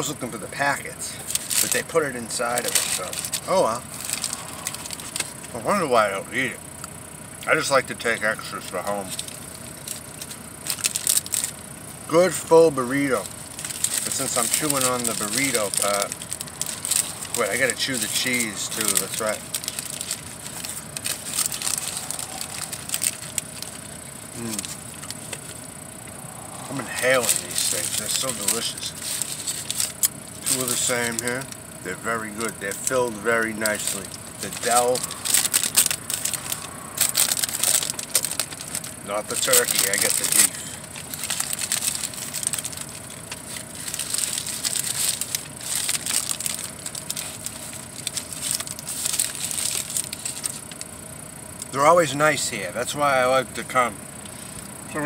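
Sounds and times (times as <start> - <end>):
paper wrapper crinkling: 1.2 - 5.6, 9.0 - 11.6, 12.9 - 25.6, 26.2 - 31.6, 32.3 - 51.0
person chewing: 19.4 - 25.6.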